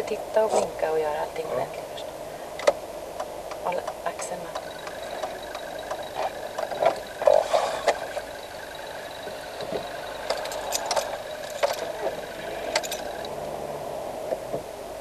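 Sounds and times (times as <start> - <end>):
car engine and road noise: 0.0 - 15.0
light clicks and rattles: 2.6 - 13.3.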